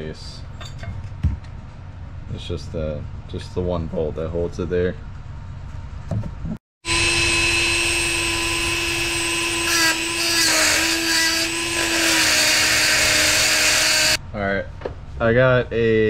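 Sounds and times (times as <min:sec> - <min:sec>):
rotary tool grinding steel bolt: 0:06.9 - 0:14.2.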